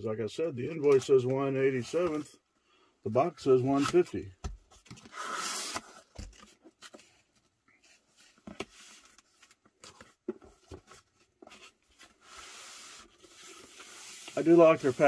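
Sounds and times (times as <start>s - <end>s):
packaging scraping against cardboard: 11.5s - 15.0s.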